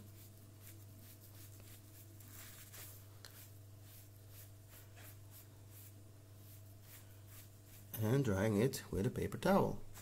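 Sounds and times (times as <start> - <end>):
wet sponge rubbing: 0.0 - 8.0
low steady hum: 0.0 - 10.0.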